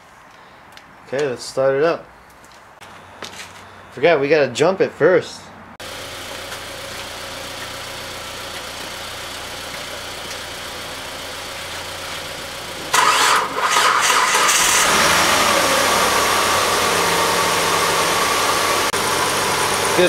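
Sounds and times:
car engine cranking and idling: 0:05.8 - 0:20.0.

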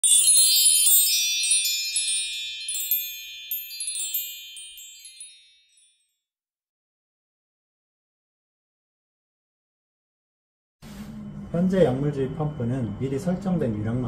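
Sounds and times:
cascade of high chime tones: 0:00.0 - 0:06.2.

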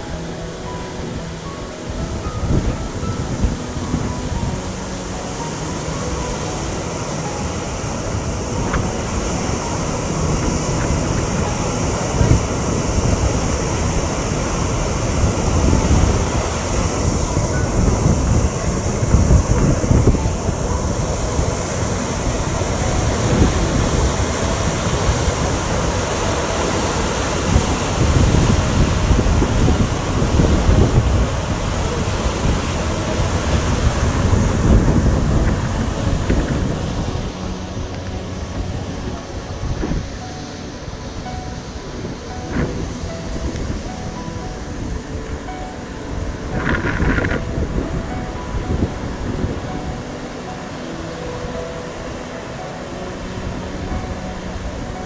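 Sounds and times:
water rushing through sluices: 0:00.0 - 0:55.0
wind buffeting microphone: 0:00.0 - 0:55.0.

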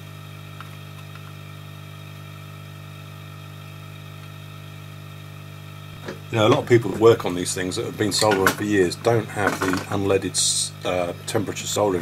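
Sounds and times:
steady electrical hum: 0:00.0 - 0:12.0.

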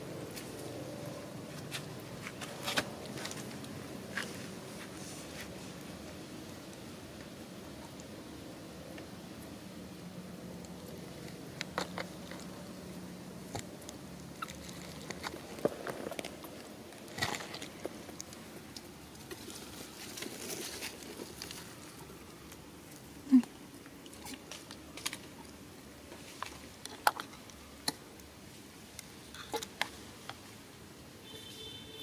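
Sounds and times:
dry leaves crackling and rustling: 0:13.6 - 0:22.6.

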